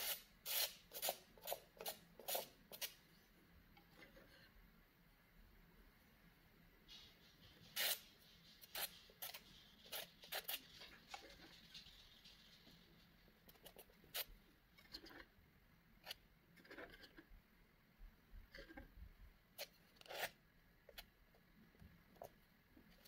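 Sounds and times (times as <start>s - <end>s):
palette knife scraping paint: 0.0s - 3.0s, 6.9s - 15.3s, 16.0s - 17.4s, 19.6s - 21.1s.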